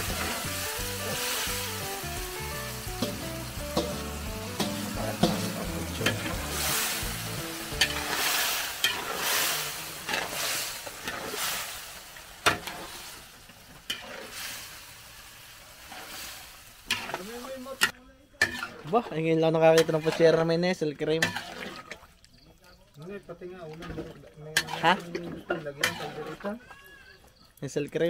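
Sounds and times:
food sizzling in a pan: 0:00.0 - 0:20.6, 0:21.2 - 0:21.8, 0:23.8 - 0:27.2
stirring strokes: 0:00.0 - 0:27.5
utensil knocking on pan: 0:03.0 - 0:06.4.

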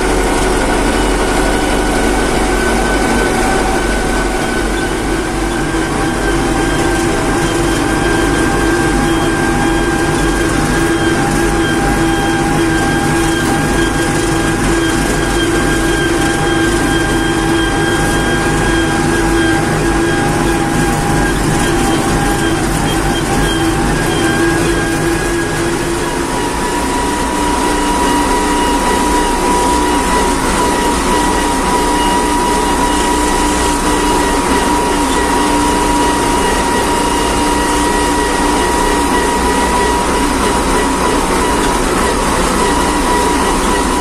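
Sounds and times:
steady whine: 0:00.0 - 0:44.0
tractor diesel engine running: 0:00.0 - 0:44.0.

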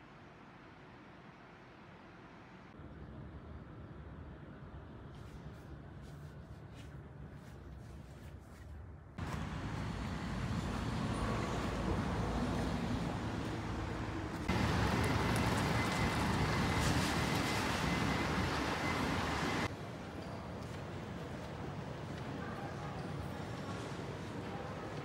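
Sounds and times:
road and vehicle ambience: 0:00.0 - 0:25.0
shuttle bus engine running: 0:09.2 - 0:22.5.

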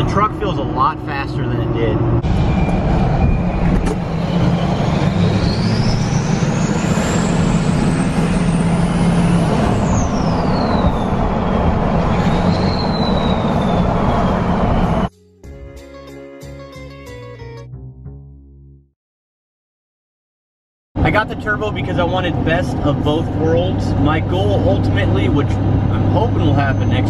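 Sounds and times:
road noise: 0:00.0 - 0:15.6, 0:21.0 - 0:27.0
diesel engine drone: 0:00.0 - 0:17.2, 0:21.0 - 0:27.0
turbo whistle: 0:12.2 - 0:15.5
music: 0:15.1 - 0:19.0.

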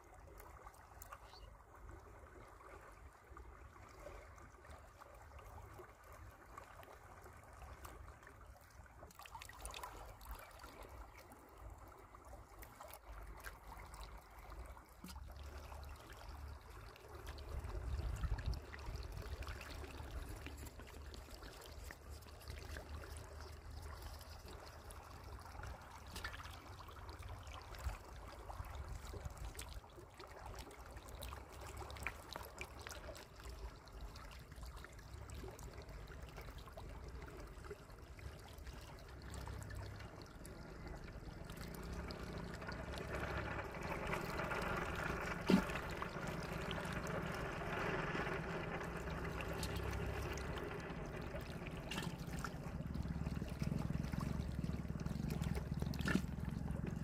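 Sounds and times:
water trickling along sand: 0:00.0 - 0:57.0
low rumble: 0:16.2 - 0:21.3, 0:38.2 - 0:57.0
fish splashing: 0:39.2 - 0:57.0.

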